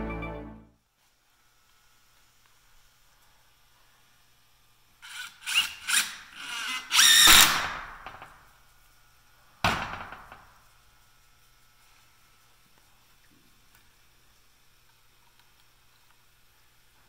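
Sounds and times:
impact driver driving a screw: 0:05.0 - 0:07.8.

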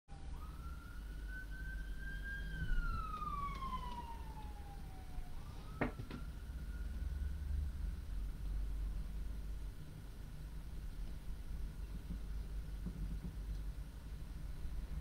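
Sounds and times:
faint wailing siren: 0:00.1 - 0:09.2.

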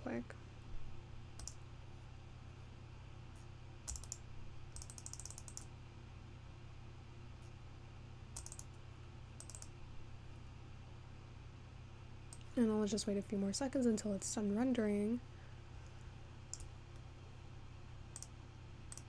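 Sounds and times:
steady low hum: 0:00.0 - 0:19.0
mouse clicks: 0:01.4 - 0:01.6, 0:03.9 - 0:05.7, 0:08.4 - 0:08.8, 0:09.4 - 0:09.7, 0:16.5 - 0:17.0, 0:18.1 - 0:19.0
keyboard keystrokes: 0:03.9 - 0:04.2, 0:04.8 - 0:05.7, 0:08.4 - 0:08.7, 0:09.4 - 0:09.7.

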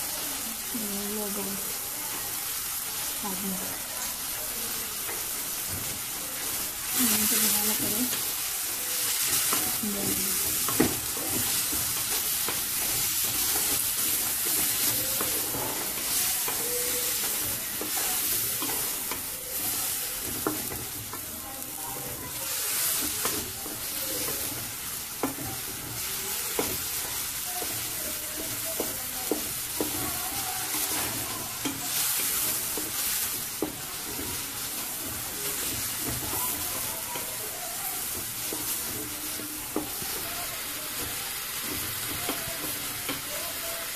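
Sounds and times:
food sizzling in oil: 0:00.0 - 0:43.9
spatula scraping a pan: 0:01.6 - 0:43.9.

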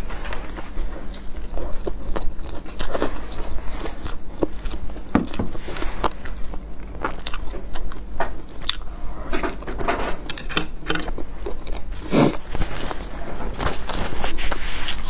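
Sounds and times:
chewing with mouth clicks: 0:00.4 - 0:09.0, 0:11.0 - 0:12.9.

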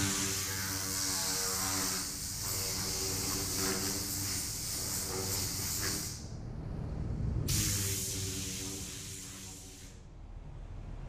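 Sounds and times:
compressed air hissing: 0:00.0 - 0:06.4, 0:07.5 - 0:10.0
low hum: 0:06.2 - 0:11.0.

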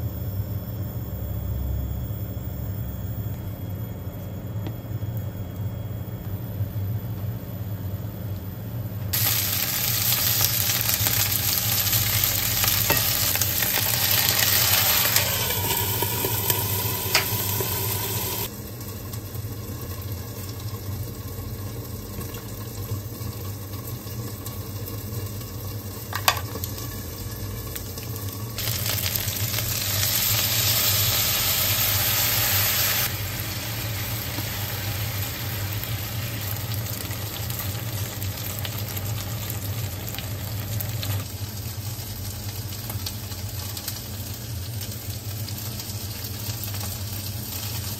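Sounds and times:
chicken sizzling in frying pan: 0:09.1 - 0:47.9
low hum: 0:10.3 - 0:18.5.

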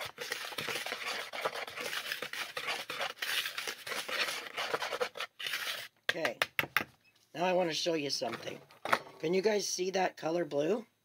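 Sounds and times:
whisk scraping through powder: 0:00.0 - 0:05.9.

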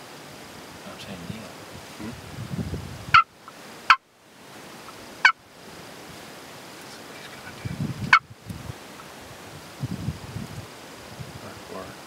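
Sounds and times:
turkey gobbling: 0:04.9 - 0:05.4.

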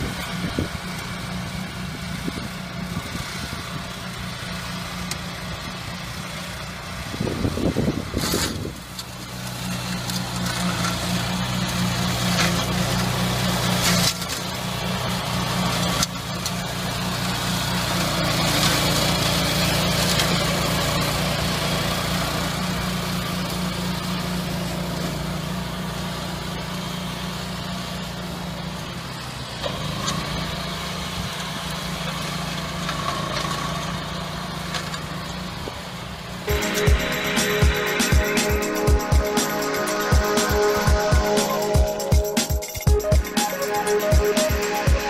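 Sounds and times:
brush cutter engine running: 0:00.0 - 0:25.5.

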